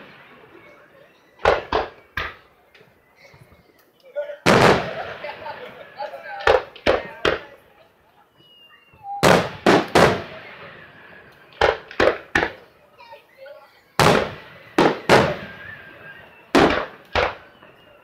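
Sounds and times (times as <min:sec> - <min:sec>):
fireworks bangs with echo: 0:00.0 - 0:02.6, 0:04.4 - 0:07.7, 0:08.9 - 0:12.8, 0:14.0 - 0:18.0.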